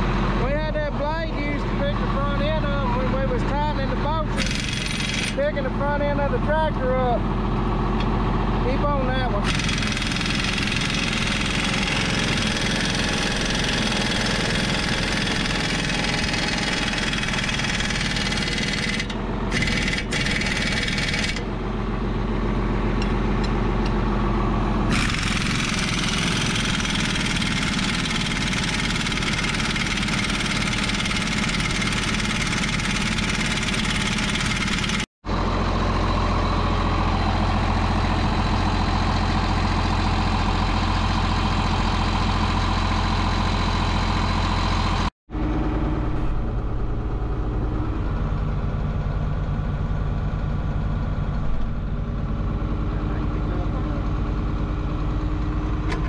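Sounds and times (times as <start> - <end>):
tractor diesel engine idling: 0.0 - 56.0
impact wrench running: 4.3 - 5.5, 9.4 - 21.5, 24.8 - 35.1.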